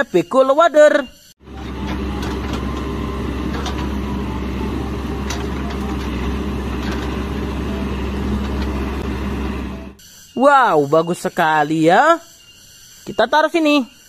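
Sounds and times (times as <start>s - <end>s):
diesel engine running: 1.4s - 10.0s.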